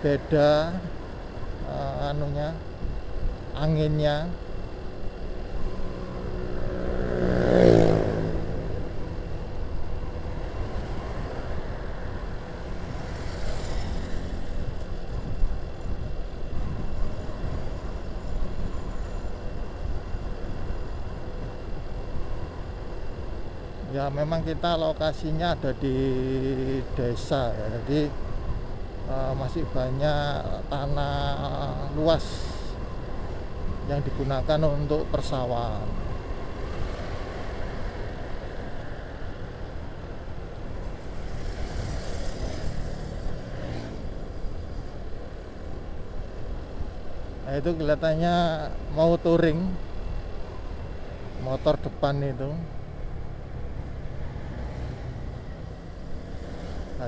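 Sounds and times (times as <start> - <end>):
wind buffeting microphone: 14.5 - 22.6
traffic hiss: 23.3 - 57.0.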